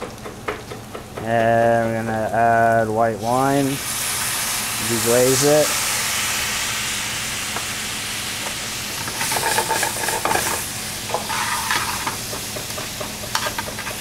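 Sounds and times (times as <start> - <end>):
wine sizzling in a hot pan: 0.0 - 14.0
metal tongs scraping a pan: 9.0 - 12.2, 13.2 - 14.0.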